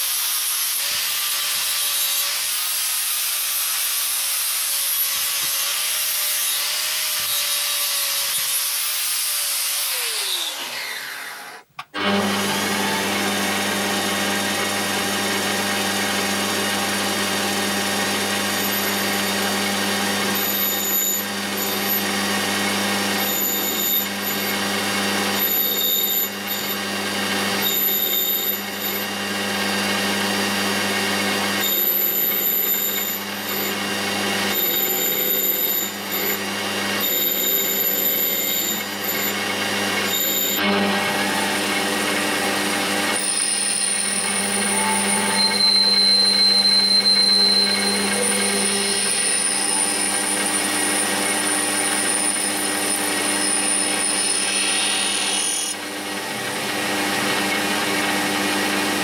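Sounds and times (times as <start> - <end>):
lathe motor humming: 10.6 - 23.0, 29.1 - 53.0
high thin cutting whine: 40.1 - 55.8.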